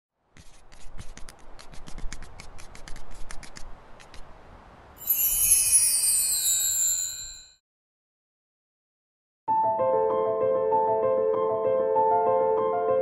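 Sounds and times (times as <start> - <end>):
pen scratching on paper: 0.4 - 4.2
shimmering descending chime: 5.0 - 7.4.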